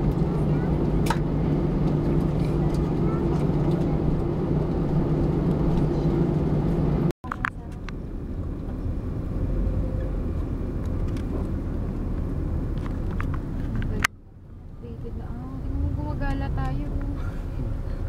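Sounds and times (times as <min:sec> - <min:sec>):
airliner engines droning in cabin: 0:00.0 - 0:09.2
car road rumble: 0:00.0 - 0:18.0.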